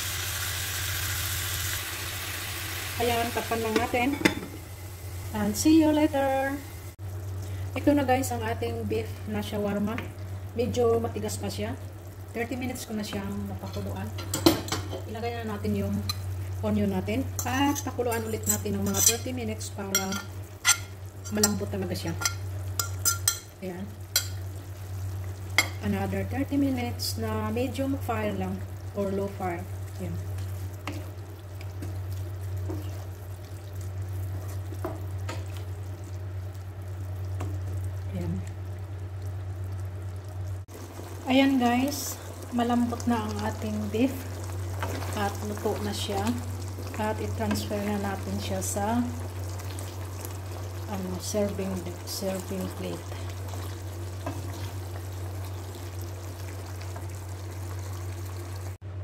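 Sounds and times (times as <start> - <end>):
steady low hum: 2.2 - 59.0
sauce bubbling: 28.1 - 58.8.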